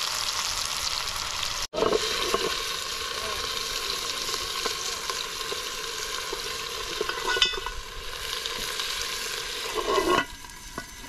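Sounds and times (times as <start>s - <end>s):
wood fire crackling and hissing: 0.0s - 11.0s
iron lid scraping: 1.8s - 2.8s, 6.0s - 11.0s.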